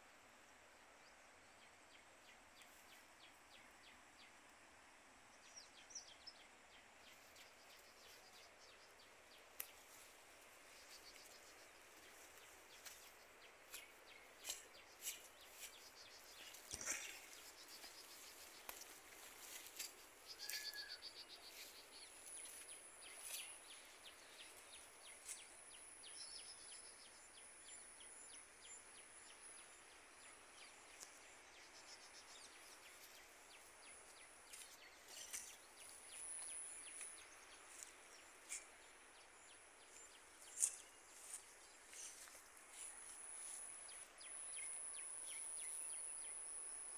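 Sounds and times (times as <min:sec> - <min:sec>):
faint bird chirps: 0:10.7 - 0:27.2.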